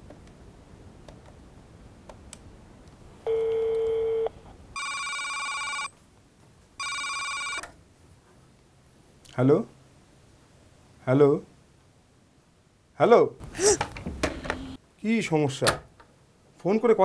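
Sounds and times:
telephone ringing: 3.3s - 5.9s, 6.8s - 7.6s.

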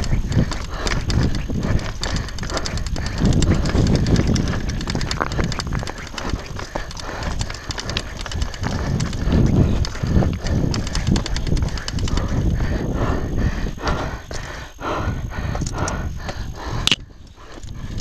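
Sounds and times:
bike tyres clattering on stones: 0.0s - 12.3s
bike chain and frame knocks: 0.0s - 12.4s
low wind rumble: 0.0s - 18.0s.

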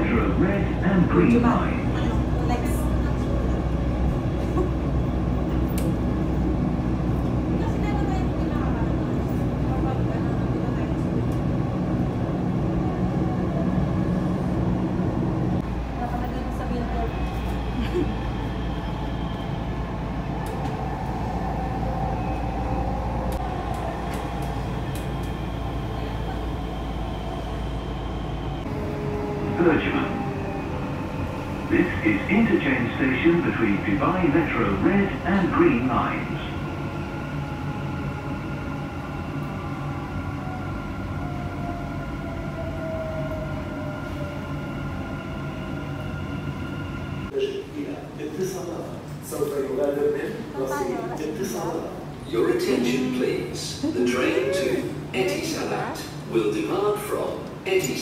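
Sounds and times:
train rumble inside carriage: 0.0s - 58.0s.

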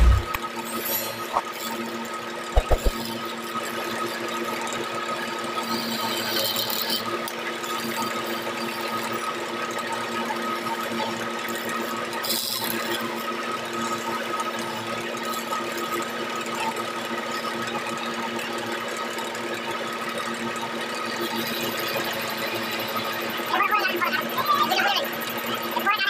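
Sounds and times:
quick knocks: 2.6s - 3.0s.

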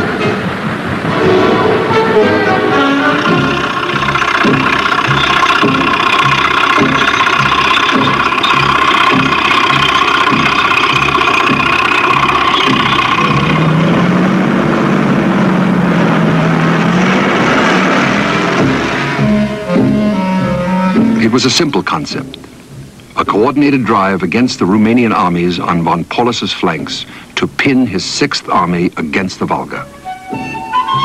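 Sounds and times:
heavy vehicle engines whining: 0.0s - 29.0s, 29.6s - 31.0s
low steady engine note: 0.0s - 31.0s.

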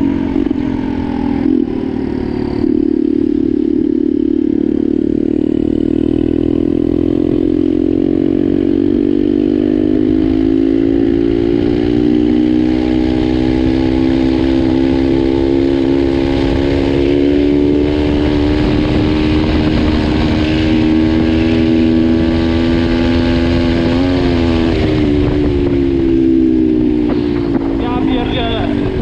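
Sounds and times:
motorcycle engine under throttle: 0.0s - 29.0s
wind on microphone: 13.6s - 29.0s.

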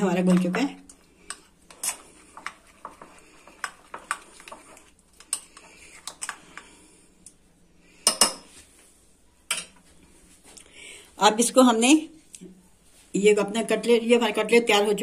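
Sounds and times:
spoon stirring batter: 0.0s - 10.1s.

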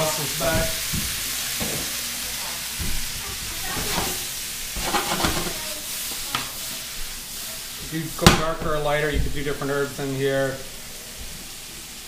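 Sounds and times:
vegetables sizzling in a pan: 0.0s - 12.0s
wooden spatula knocking on pan: 4.8s - 5.6s.

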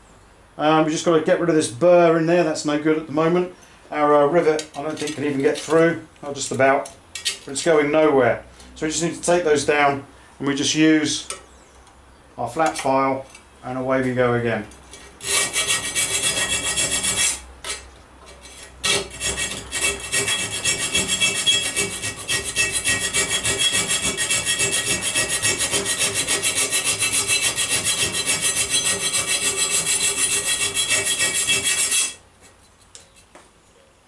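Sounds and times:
hand file rasping on steel: 15.2s - 17.8s, 18.4s - 32.2s.

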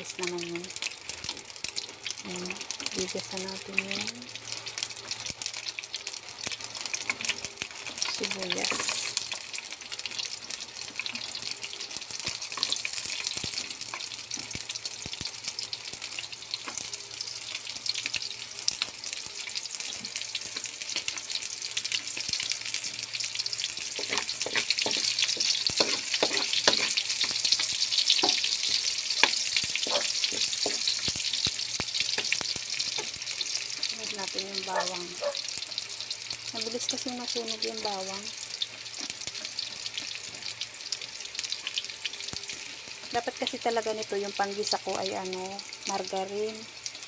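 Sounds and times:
onion and garlic sizzling in oil: 0.0s - 47.0s
wooden spatula scraping a wok: 23.9s - 27.3s.

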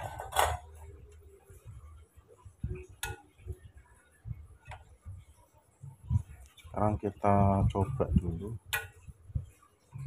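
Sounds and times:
faint clicks and taps on metal: 2.8s - 3.6s, 8.7s - 9.1s.

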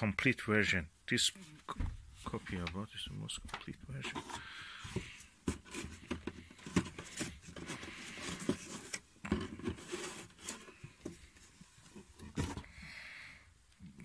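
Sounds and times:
paper rustling and crinkling: 3.9s - 12.8s.

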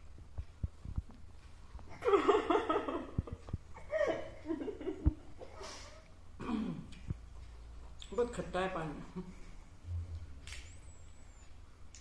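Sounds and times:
women laughing and giggling: 1.9s - 5.9s.

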